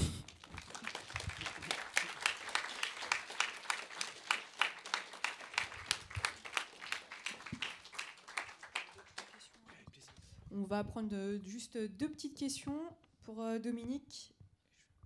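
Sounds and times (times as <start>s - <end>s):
small audience applause: 0.0s - 10.3s.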